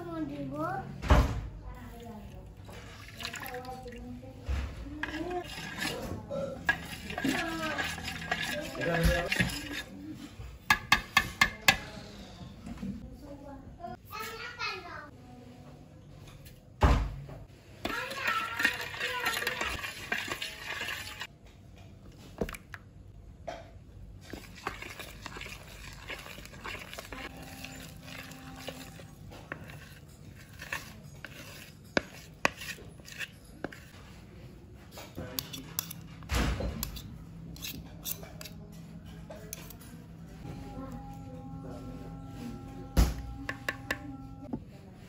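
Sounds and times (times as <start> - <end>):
spoon scraping glass bowl: 5.0 - 11.5, 17.8 - 21.3, 24.2 - 34.1, 36.8 - 38.6.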